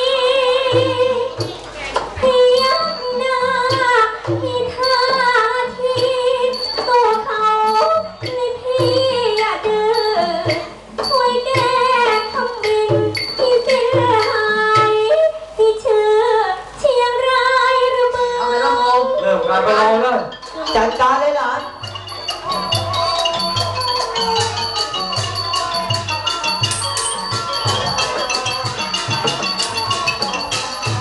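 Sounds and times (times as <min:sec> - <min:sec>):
woman singing through microphone: 0:00.0 - 0:20.0
instrumental backing: 0:18.0 - 0:31.0.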